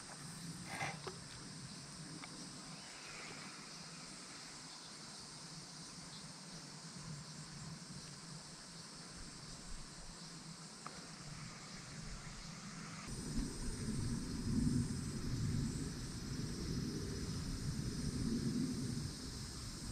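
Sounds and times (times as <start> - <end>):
faint insect chorus: 0.0 - 19.9.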